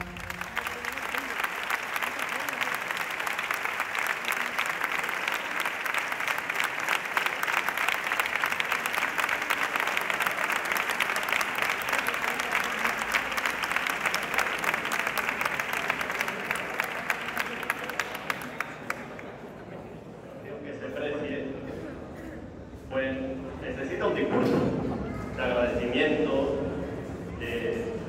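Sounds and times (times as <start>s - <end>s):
audience applauding: 0.0s - 19.5s.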